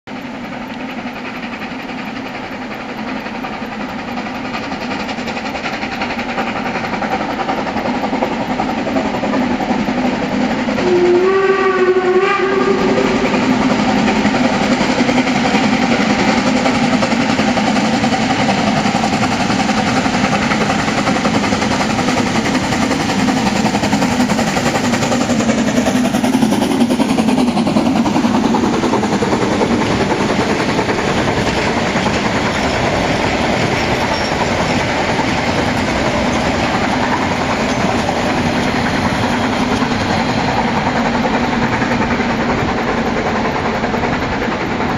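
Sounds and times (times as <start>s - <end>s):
steam locomotive working uphill: 0.0s - 44.9s
steam whistle blast: 10.8s - 13.6s.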